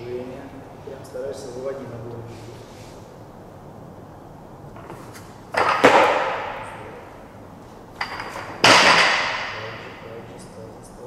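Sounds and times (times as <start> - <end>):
barbell crashing metallically: 8.0 - 10.0.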